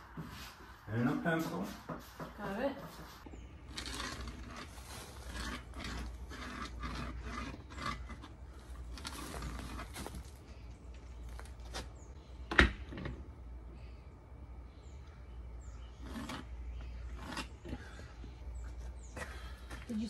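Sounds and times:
spirit level scraping on wall: 2.8 - 10.3, 15.9 - 17.9.

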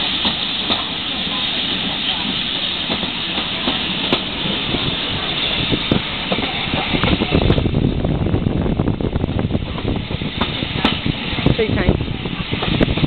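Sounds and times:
train running on track: 0.0 - 13.0
wind noise: 4.1 - 13.0.

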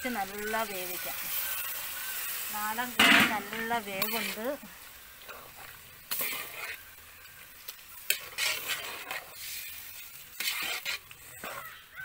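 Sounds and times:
spatula scraping metal pot: 0.3 - 4.5, 5.3 - 6.9, 8.0 - 11.7.

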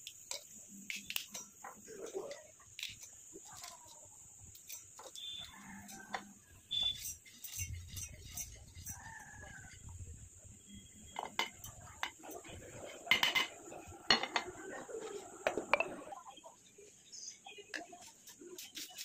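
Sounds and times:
spices rattling into a steel jar: 6.7 - 9.0
jar and plate clinking: 13.1 - 14.6, 15.5 - 16.1.

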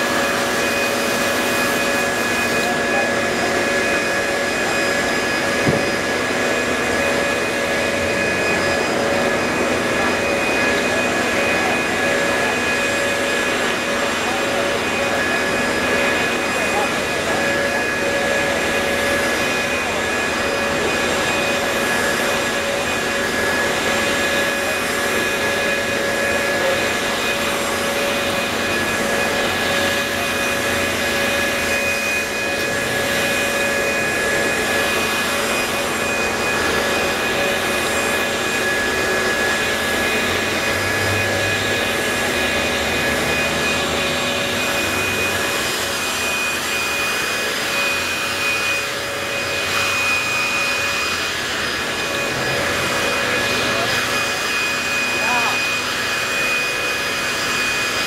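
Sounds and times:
leaf blower running: 0.0 - 58.0.

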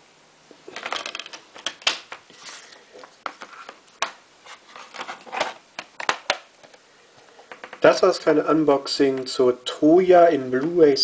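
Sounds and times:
packaging rustling: 0.6 - 6.8.

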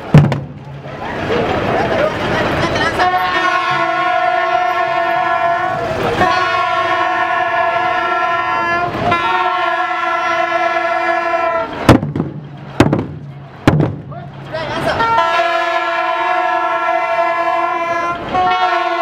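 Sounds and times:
large drum strikes: 0.0 - 1.0, 11.8 - 14.5
horn blasts: 2.8 - 11.9, 14.4 - 19.0.

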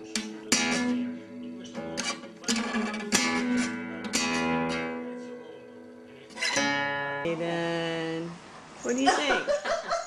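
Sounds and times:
cat plucking guitar strings: 0.0 - 5.2.

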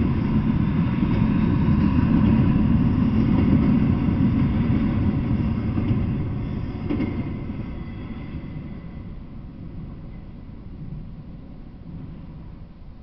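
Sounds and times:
freight train rolling on rails: 0.0 - 13.0.

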